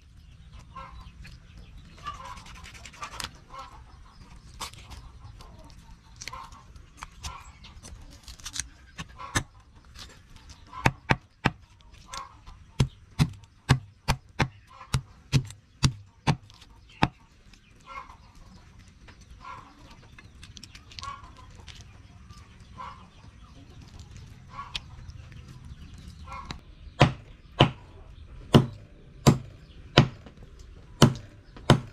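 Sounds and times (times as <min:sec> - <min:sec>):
chickens clucking: 0:00.2 - 0:31.8
cleaver chopping on wooden block: 0:10.8 - 0:11.6, 0:12.8 - 0:17.2, 0:27.0 - 0:27.8, 0:28.5 - 0:30.3, 0:31.0 - 0:31.9.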